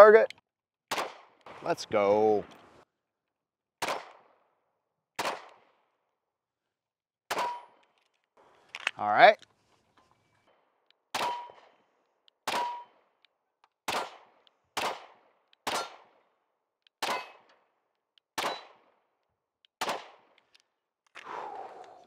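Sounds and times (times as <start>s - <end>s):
pistol shots: 0.9s - 1.4s, 3.8s - 4.4s, 5.2s - 5.8s, 7.3s - 7.8s, 11.1s - 11.8s, 12.4s - 13.0s, 13.8s - 16.2s, 17.0s - 17.5s, 18.4s - 18.9s, 19.8s - 20.4s.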